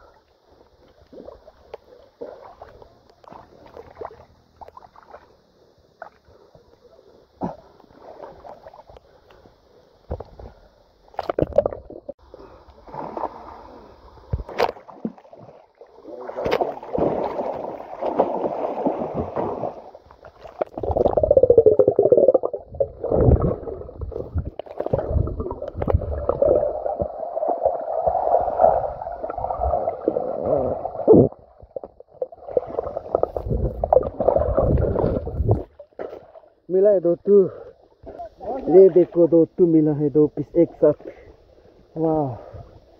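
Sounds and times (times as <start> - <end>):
swimmer splashing: 14.5 - 20.6
muffled underwater gurgling: 20.6 - 35.7.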